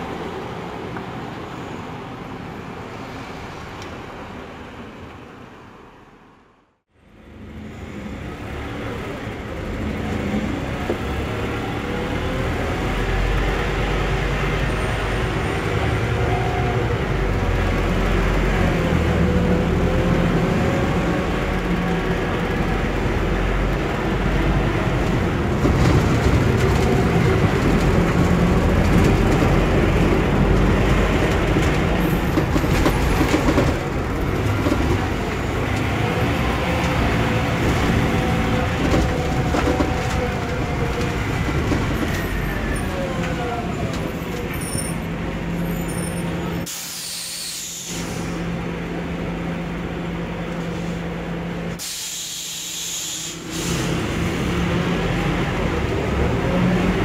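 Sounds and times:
bus engine and road noise: 0.0s - 57.0s
air hisses: 46.7s - 48.4s, 51.8s - 54.0s.

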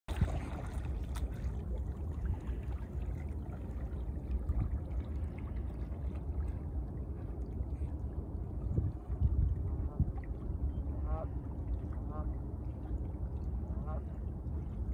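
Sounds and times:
water lapping on rocky shore: 0.1s - 8.0s
wind rumble on microphone: 0.1s - 14.9s.

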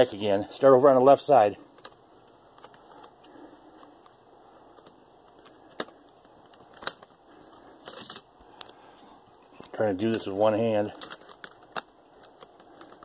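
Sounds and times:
plastic handling noise: 1.6s - 13.0s
sharp plastic clicks: 11.0s - 13.0s.

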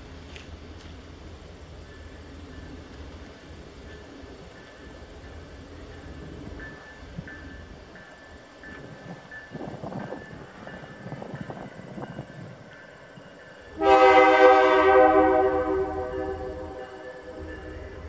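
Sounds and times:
locomotive air horn blast: 13.8s - 17.4s.

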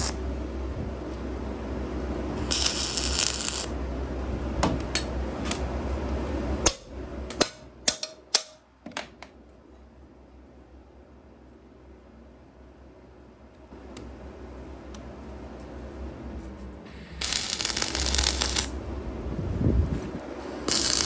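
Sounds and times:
welding arc hissing and humming: 0.0s - 0.2s, 2.4s - 3.8s, 16.9s - 18.8s, 20.3s - 21.0s.

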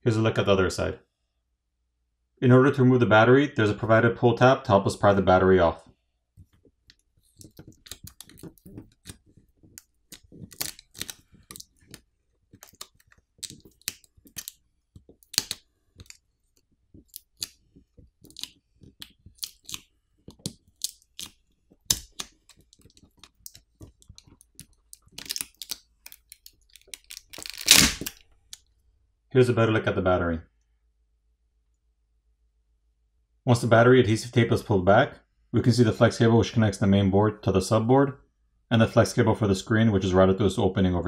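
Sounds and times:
adhesive tape peeling crackles: 7.3s - 14.6s, 15.2s - 16.2s, 18.2s - 28.2s.

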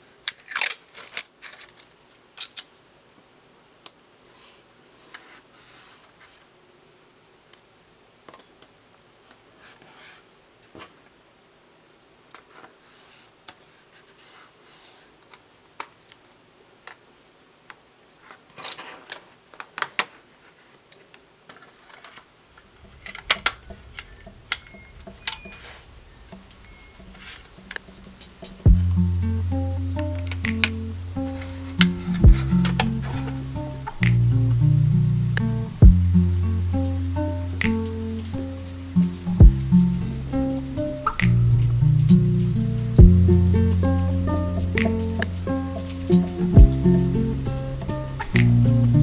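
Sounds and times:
paper rustling: 0.3s - 2.8s, 18.0s - 23.3s, 30.0s - 34.4s
faint low hum: 22.5s - 49.0s.

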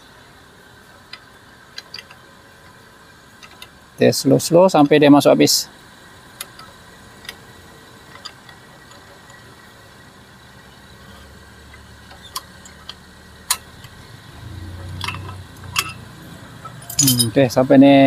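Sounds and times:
caliper compressor metallic clicks: 14.9s - 16.0s.

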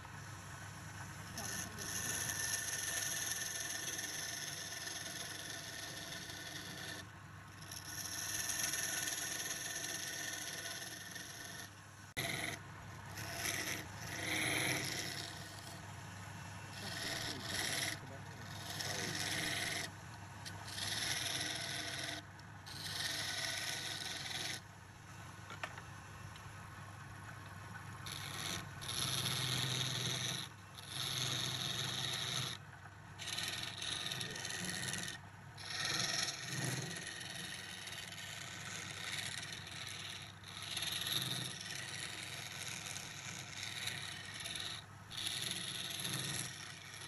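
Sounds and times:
lathe humming: 0.0s - 7.0s, 10.0s - 24.6s
chisel scraping spinning wood: 1.0s - 24.7s, 27.3s - 47.0s.

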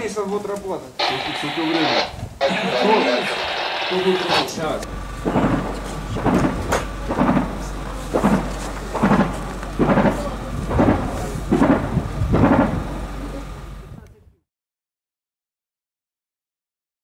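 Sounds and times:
steady low hum: 1.0s - 14.4s
distant heavy booms: 5.2s - 13.0s.

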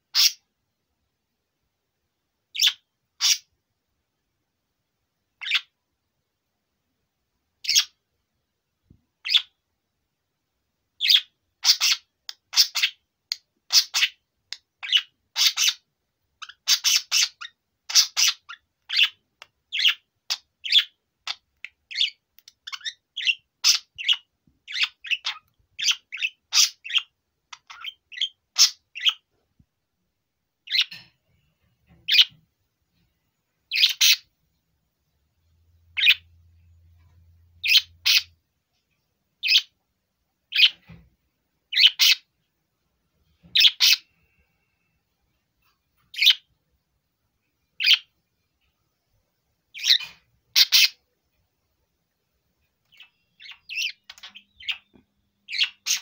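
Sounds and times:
budgerigar chirping: 0.1s - 0.5s, 2.5s - 3.5s, 5.4s - 5.8s, 7.6s - 8.0s, 9.2s - 9.6s, 11.0s - 13.0s, 13.7s - 14.2s, 14.8s - 29.3s, 30.7s - 31.1s, 31.9s - 32.4s, 33.7s - 34.3s, 35.9s - 36.4s, 37.6s - 38.4s, 39.4s - 39.8s, 40.5s - 41.0s, 41.7s - 42.3s, 43.4s - 44.1s, 46.1s - 46.5s, 47.8s - 48.1s, 49.7s - 51.0s, 52.9s - 56.0s.

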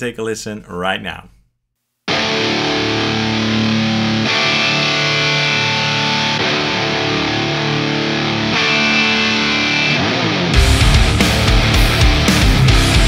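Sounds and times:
distorted electric guitar chords: 2.1s - 13.0s.

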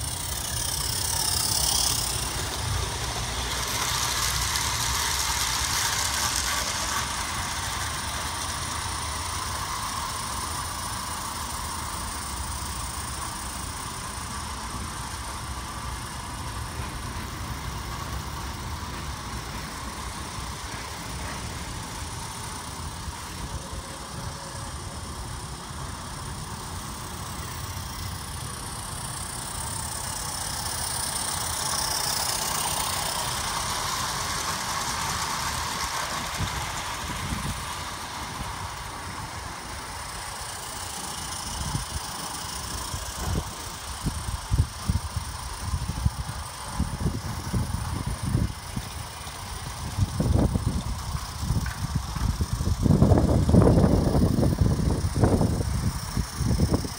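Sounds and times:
model train wheels clattering: 0.0s - 56.9s.

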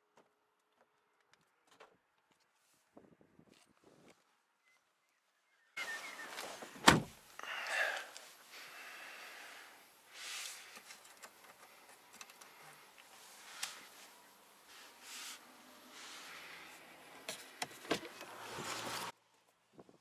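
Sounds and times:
car cabin noise: 6.0s - 7.2s
car door slamming shut: 6.8s - 7.2s.

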